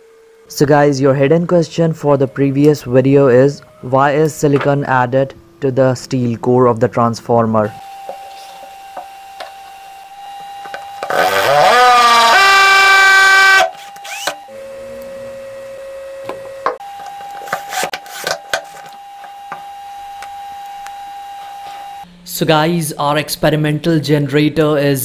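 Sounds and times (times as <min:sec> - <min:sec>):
cordless drill drilling into wood: 0:07.8 - 0:14.5, 0:16.8 - 0:22.0.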